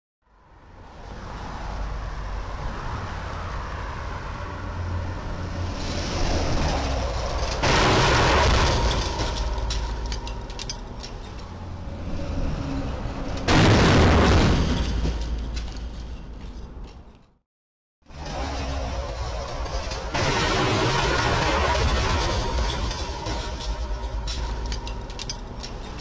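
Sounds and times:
street traffic rumble: 0.2 - 17.4, 18.0 - 26.0
delivery truck speeding past: 18.1 - 25.1
faint clicks and rattles: 22.9 - 26.0.

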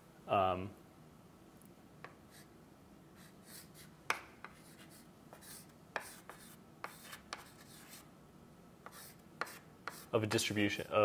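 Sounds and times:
chalk scratching on blackboard: 2.0 - 2.5, 3.2 - 8.1, 8.8 - 10.1
chalk tapping on board: 3.2 - 8.0, 8.8 - 10.1.

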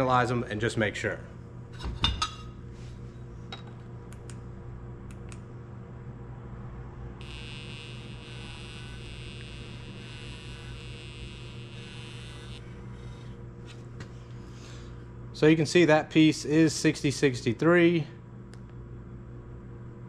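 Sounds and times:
steady low hum: 0.0 - 20.0
high-pitched buzz: 7.1 - 13.4.

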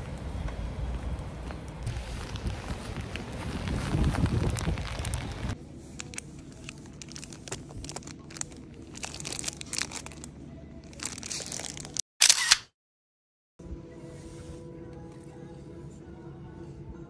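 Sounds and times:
wind rumble on microphone: 0.1 - 5.6
cellophane crinkling: 1.9 - 12.0.

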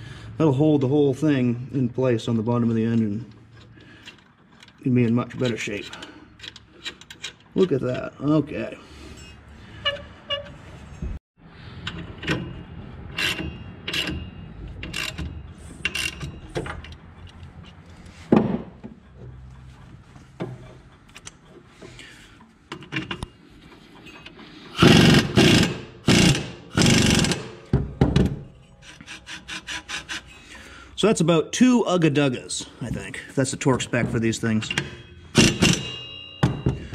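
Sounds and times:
tools and metal parts clinking: 2.8 - 8.0, 33.8 - 36.9
impact wrench hammering: 24.8 - 28.4, 34.6 - 36.9.

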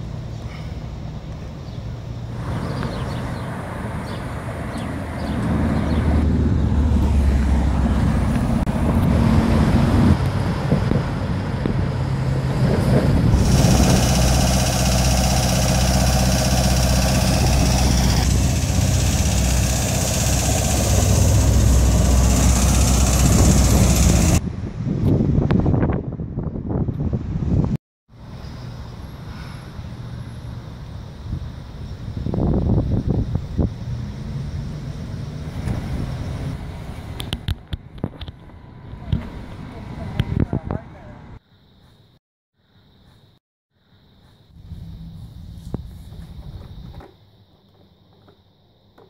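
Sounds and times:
truck passing: 0.0 - 24.9, 33.4 - 41.4
vehicles passing: 0.0 - 25.4, 28.2 - 41.4.

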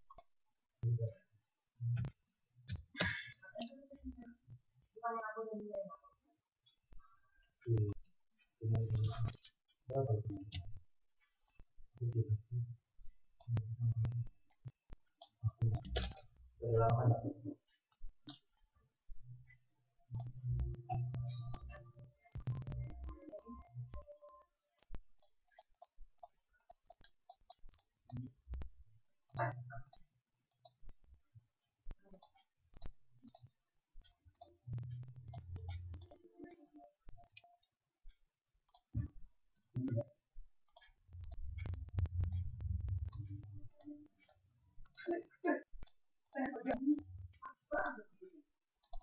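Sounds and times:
keyboard typing: 13.4 - 16.3, 24.8 - 28.3, 32.1 - 37.8, 40.6 - 45.1.

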